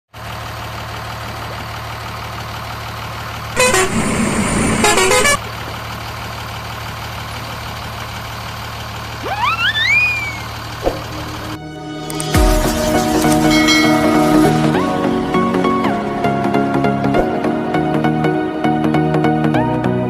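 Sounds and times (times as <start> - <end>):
truck engine drone: 0.2 - 20.0
stepped rising glide: 3.6 - 5.4
truck horn honk: 3.6 - 5.5.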